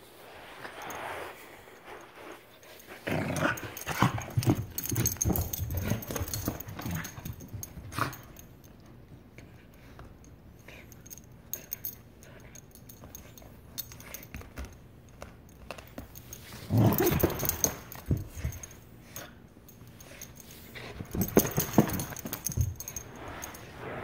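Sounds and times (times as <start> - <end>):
dog play-growling: 2.9 - 8.4, 16.4 - 18.6.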